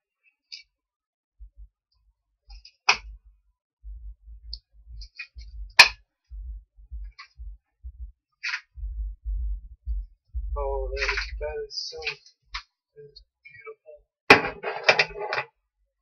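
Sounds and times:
light clicks and low thuds: 2.9 - 12.2.

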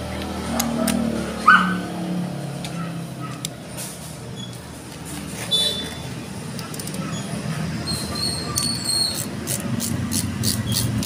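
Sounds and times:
metal tool scraping and clicking: 2.6 - 7.3, 7.9 - 11.0
short high squeaks: 5.4 - 6.1, 7.0 - 9.4.

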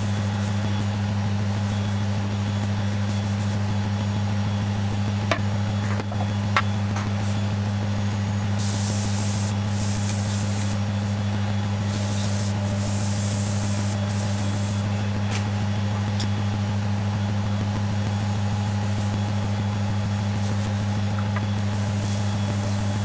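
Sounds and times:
wood lathe humming: 20.8 - 23.0.

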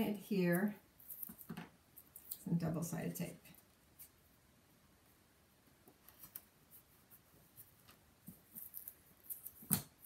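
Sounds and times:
tape crackling and rustling: 0.5 - 2.5, 5.7 - 10.0.

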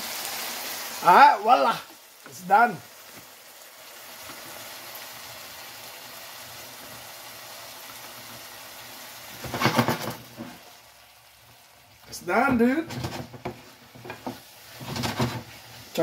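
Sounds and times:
food sizzling in a frying pan: 0.0 - 16.0
spatula scraping a pan: 9.4 - 10.6, 12.5 - 16.0.

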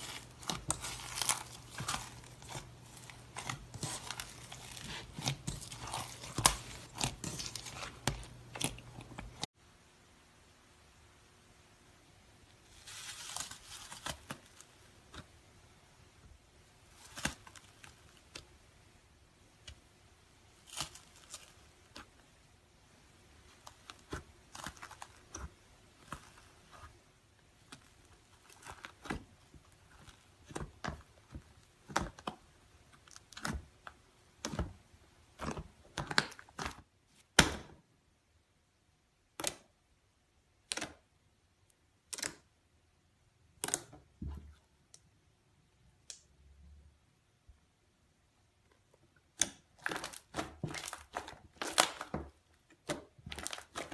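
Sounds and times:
slime crust crunching and crackling: 0.0 - 9.5, 20.5 - 22.3, 23.4 - 37.5, 49.3 - 53.9.

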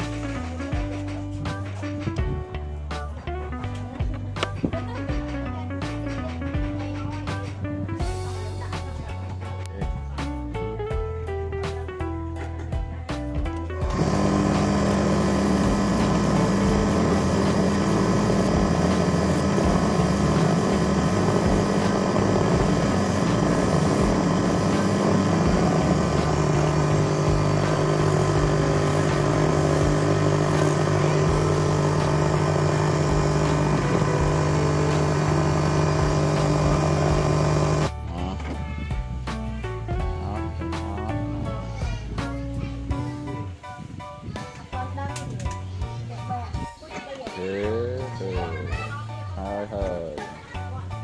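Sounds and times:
motor humming: 13.8 - 38.0.

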